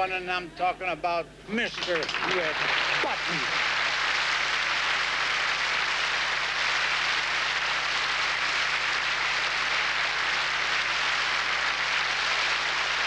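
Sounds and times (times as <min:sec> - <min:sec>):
audience applauding: 0:01.7 - 0:13.0.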